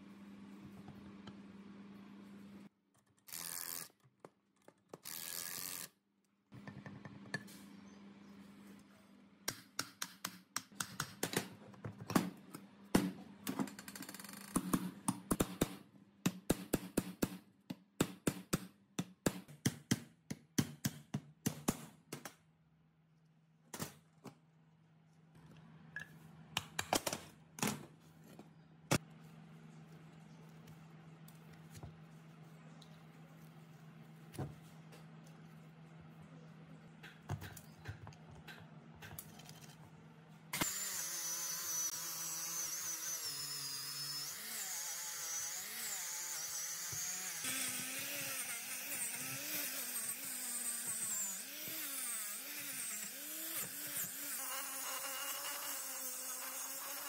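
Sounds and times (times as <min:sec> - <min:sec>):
low steady hum: 0:22.7 - 0:40.6.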